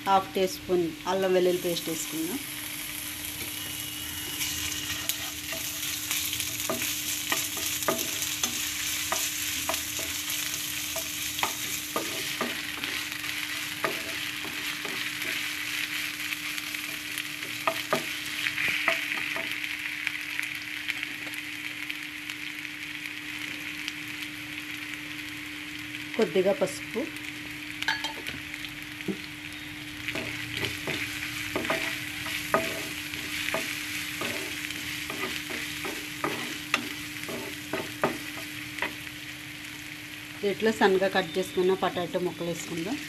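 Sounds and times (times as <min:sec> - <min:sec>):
vegetables sizzling in hot oil: 0:00.0 - 0:43.0
wooden spatula scraping pan: 0:33.6 - 0:38.2.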